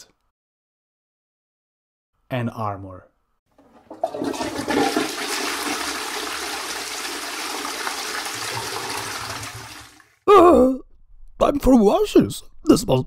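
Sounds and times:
toilet flushing: 3.6 - 10.2.

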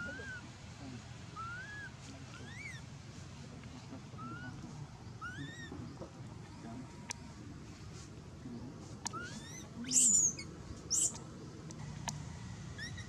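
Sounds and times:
monkey coo calls: 0.0 - 0.5, 1.4 - 2.8, 4.2 - 4.6, 5.2 - 5.8, 9.0 - 11.2
low outdoor background hum: 0.0 - 13.0.

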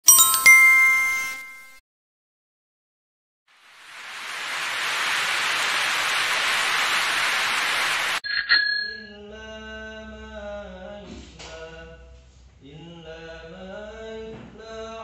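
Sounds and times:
bright bell ding: 0.0 - 1.8, 8.3 - 9.1
rushing noise: 3.6 - 8.6.

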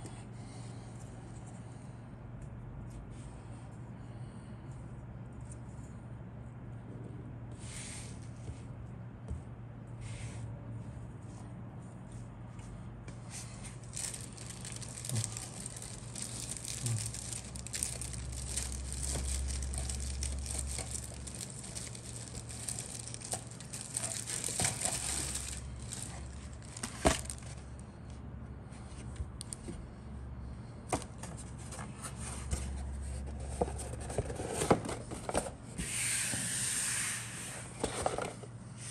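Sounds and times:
low steady hum: 0.0 - 35.8
plastic parts rustling and clicking: 13.6 - 27.8.

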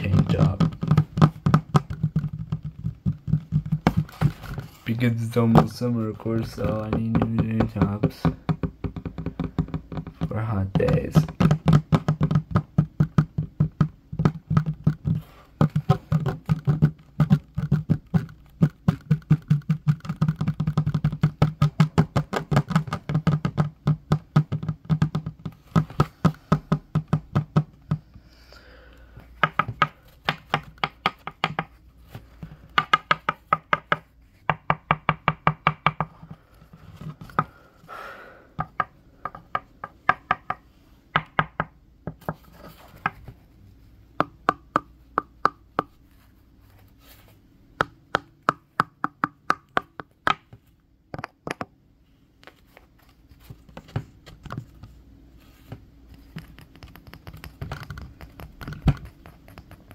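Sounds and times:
fingers tapping on wooden table: 6.6 - 28.0, 29.4 - 31.8, 32.8 - 36.3, 38.6 - 43.2.

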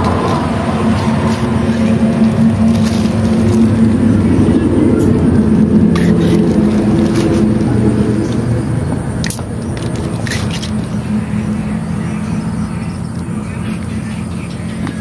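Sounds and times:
plastic bags crinkling: 0.0 - 4.3, 6.0 - 7.7
low motor hum: 0.0 - 15.0.

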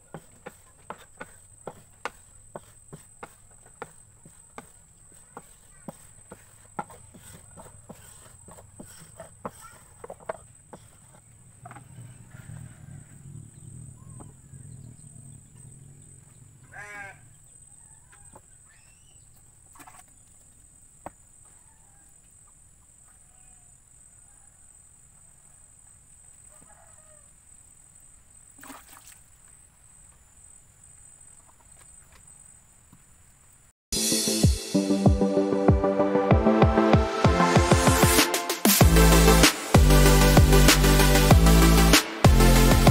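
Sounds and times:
farm animal call: 16.6 - 19.2.

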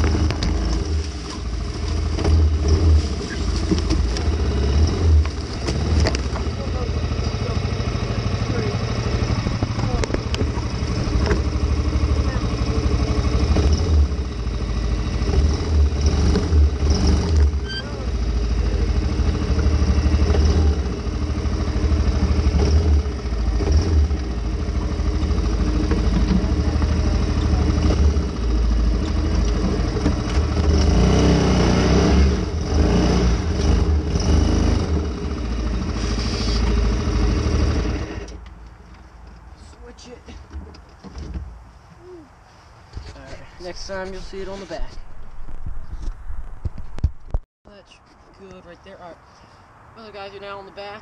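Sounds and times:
quad bike engine revving: 0.0 - 38.4.

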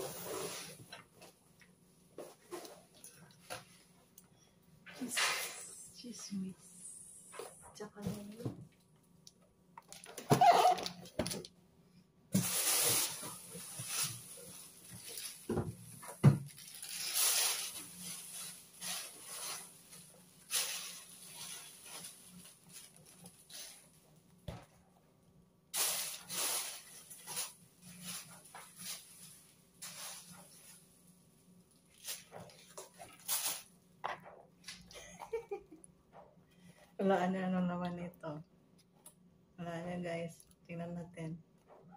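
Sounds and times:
plastic bags rustling: 9.8 - 11.4, 12.4 - 24.2, 25.8 - 33.8.

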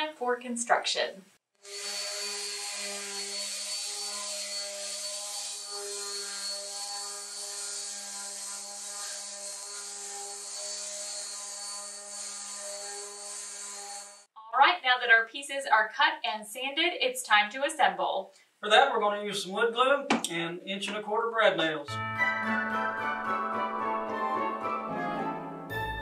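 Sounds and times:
orbital sander on wood: 1.6 - 14.3.

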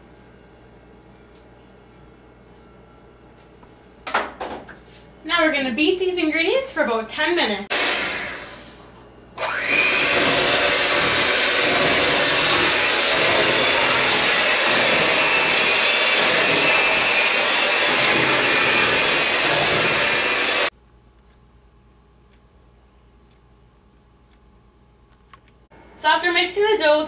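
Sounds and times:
electric hand mixer whipping dough: 7.7 - 8.8, 9.4 - 20.7.

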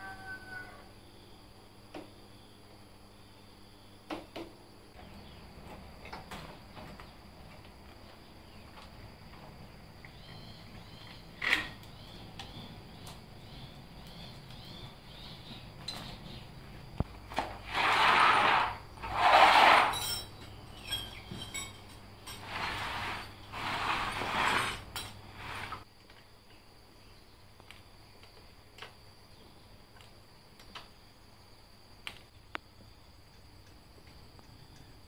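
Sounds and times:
metal parts rattling and scraping: 17.7 - 25.8.

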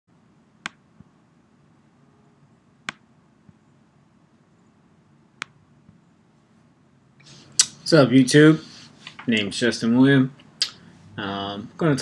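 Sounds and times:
faint low hum: 0.1 - 12.0
computer mouse clicking: 0.6 - 0.8, 2.8 - 3.0.

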